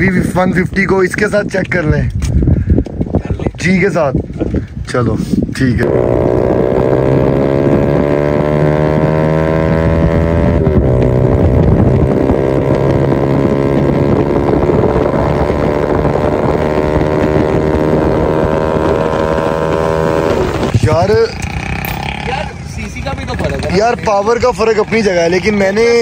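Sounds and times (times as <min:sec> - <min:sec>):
wind over microphone: 0:00.0 - 0:22.6
motorcycle engine accelerating: 0:00.0 - 0:26.0.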